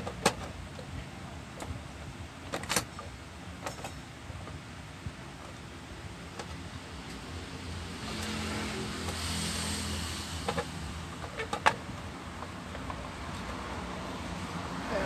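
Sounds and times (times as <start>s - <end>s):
low hum and hiss: 0.0s - 15.0s
sharp clicks and knocks: 10.4s - 13.6s.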